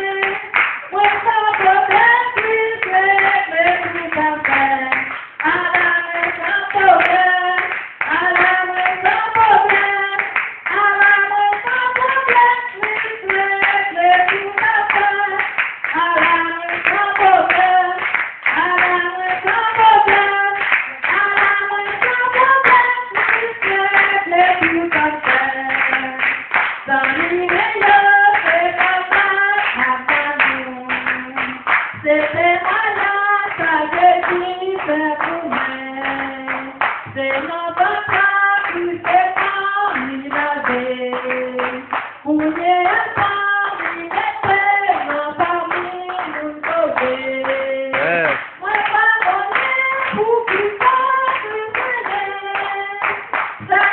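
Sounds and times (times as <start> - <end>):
hand clapping in time: 0.0 - 53.9
woman singing gospel song: 0.0 - 53.9.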